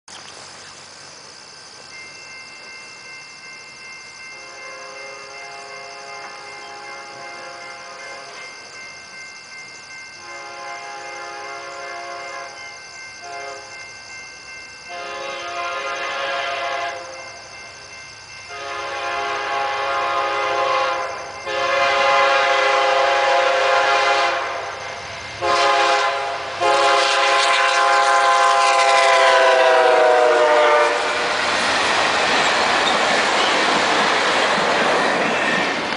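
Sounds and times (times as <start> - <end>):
locomotive air horn blasts: 4.4 - 7.9, 10.2 - 12.6, 13.2 - 13.7, 14.9 - 17.1, 18.5 - 24.6, 25.4 - 31.3.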